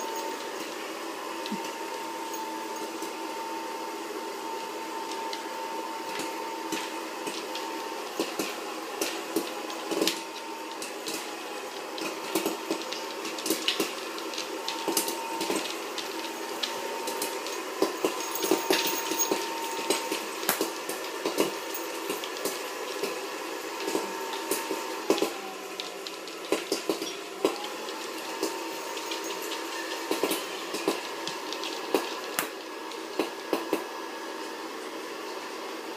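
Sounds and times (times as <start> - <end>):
steady mechanical hum: 0.0 - 35.9
dog crunching popcorn: 6.2 - 33.9.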